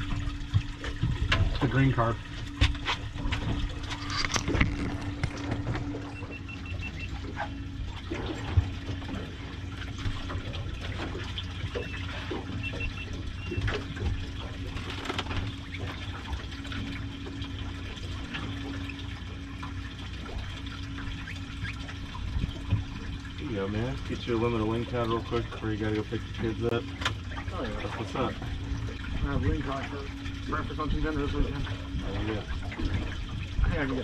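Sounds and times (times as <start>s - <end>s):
steady low hum: 0.0s - 34.0s
water splashing against boat hull: 0.0s - 34.0s
high beeps: 6.1s - 7.2s, 12.6s - 13.6s.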